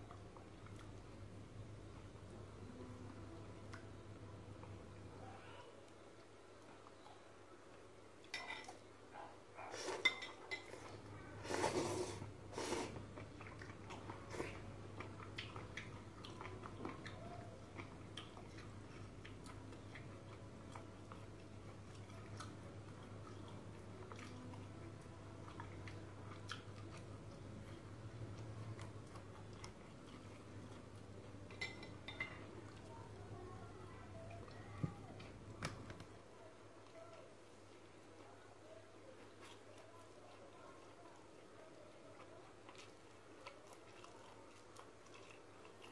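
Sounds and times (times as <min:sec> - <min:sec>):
crayfish crunching dry noodles: 0:37.1 - 0:45.9.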